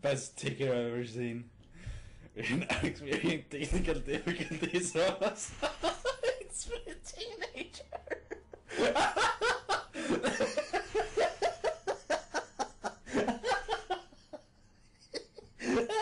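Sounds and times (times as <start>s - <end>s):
person laughing hard: 4.1s - 16.0s.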